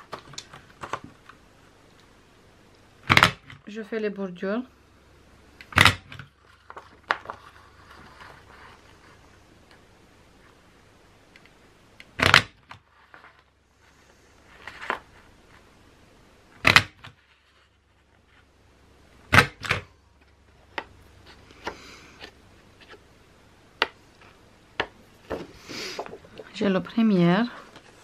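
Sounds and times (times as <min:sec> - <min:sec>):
paper rustling: 0:06.4 - 0:09.4, 0:12.8 - 0:15.7, 0:27.4 - 0:28.0.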